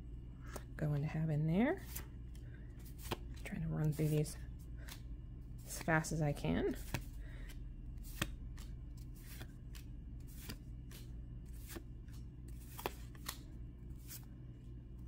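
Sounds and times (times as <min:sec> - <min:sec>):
low hum: 0:00.0 - 0:15.0
cards flicking: 0:06.7 - 0:14.3.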